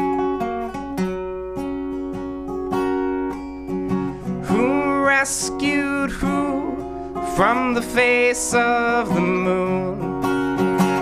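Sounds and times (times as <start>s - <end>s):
acoustic guitar picking chords: 0.0s - 11.0s
man singing: 4.4s - 11.0s.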